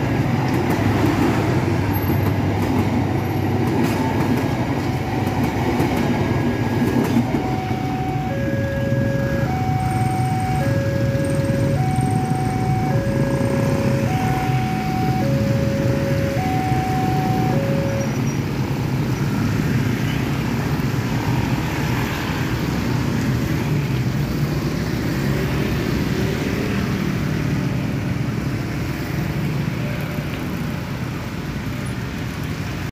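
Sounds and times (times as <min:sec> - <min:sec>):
level crossing warning alarm: 0:04.8 - 0:05.9, 0:06.5 - 0:18.4
motorcycles and cars moving off: 0:06.4 - 0:32.9.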